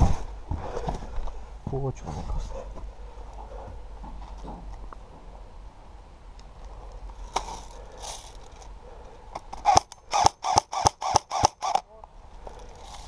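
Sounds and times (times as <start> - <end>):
airsoft gun shots: 9.6 - 11.8.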